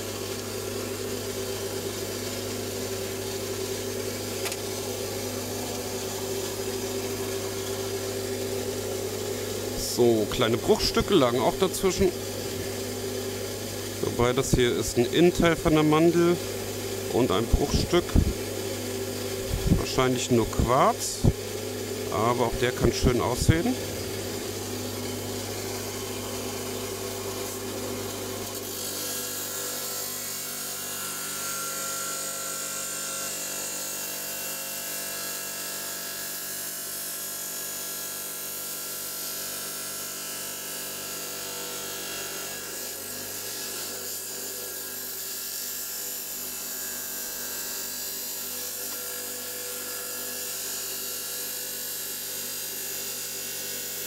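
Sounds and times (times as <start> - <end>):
motor hum: 0.0 - 32.1
stone saw grinding: 0.0 - 33.9.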